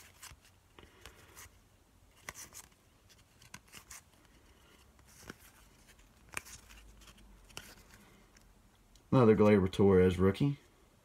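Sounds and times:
cards sliding against cards: 0.0s - 8.5s.

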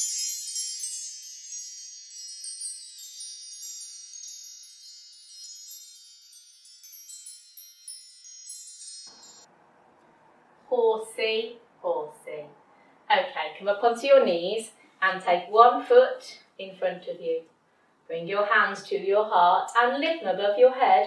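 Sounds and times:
wind chimes ringing: 0.0s - 9.5s.

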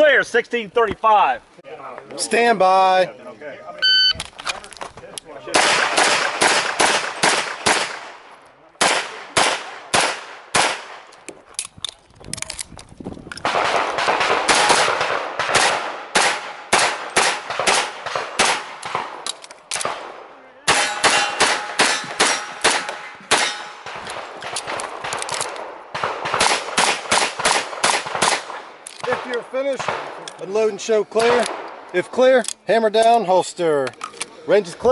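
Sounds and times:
rapid pistol shots: 5.5s - 8.2s, 8.8s - 11.0s, 13.4s - 19.2s, 19.8s - 30.2s.

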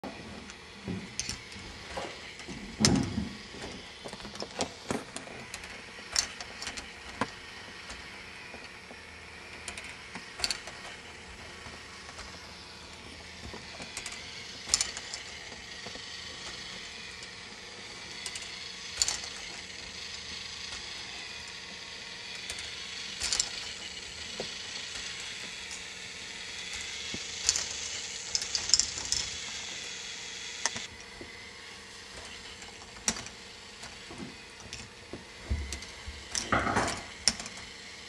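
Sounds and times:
mechanical whirr: 0.0s - 38.0s
plastic clicks and clacks: 9.6s - 12.4s, 35.6s - 37.7s.

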